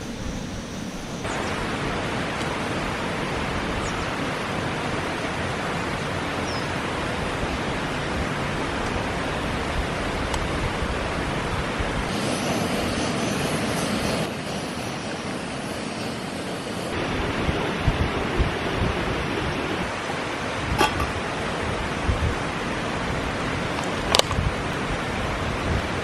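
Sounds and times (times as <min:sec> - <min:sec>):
camp stove burner rushing: 0:00.0 - 0:03.9, 0:08.0 - 0:20.0, 0:20.6 - 0:21.7.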